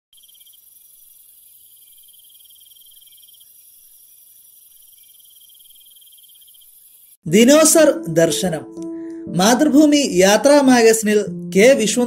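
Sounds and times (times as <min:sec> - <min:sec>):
cricket high trill: 0:00.1 - 0:07.2
insect hiss: 0:00.1 - 0:07.2.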